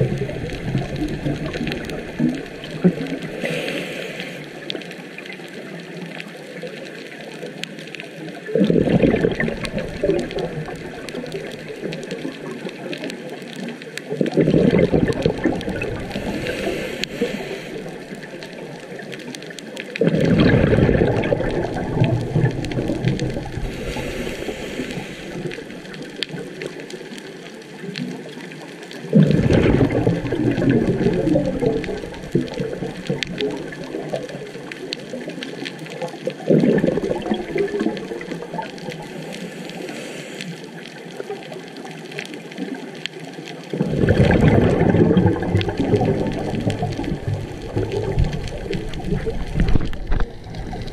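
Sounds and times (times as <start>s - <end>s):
breath bubbling underwater: 0.0s - 4.8s, 8.5s - 12.6s, 14.1s - 19.2s, 19.8s - 26.8s, 29.1s - 35.1s, 36.3s - 40.6s, 43.7s - 50.9s
underwater noise: 0.0s - 50.9s.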